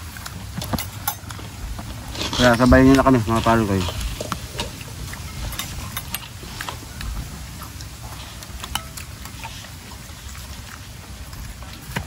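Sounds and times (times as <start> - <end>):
low steady rumble: 0.0 - 12.0
spoon clinking in glass bowl: 8.7 - 9.0.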